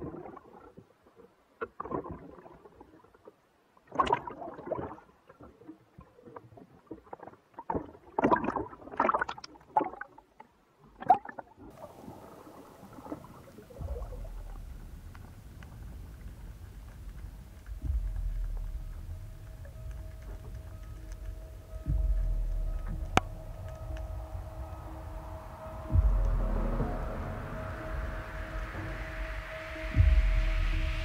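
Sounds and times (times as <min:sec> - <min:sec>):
sea water sloshing and gurgling: 0:00.0 - 0:30.2
low drone: 0:11.7 - 0:31.0.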